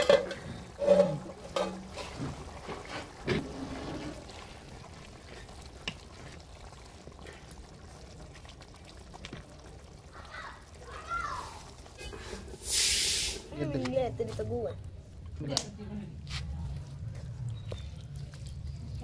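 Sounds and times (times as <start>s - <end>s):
wooden spatula scraping metal pan: 0.0s - 4.3s
curry simmering: 0.0s - 19.0s.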